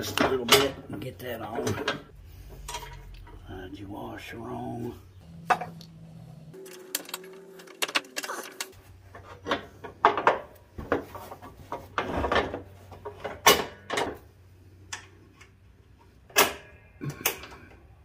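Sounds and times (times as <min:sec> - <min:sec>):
small metal parts clicking: 0:06.6 - 0:08.8.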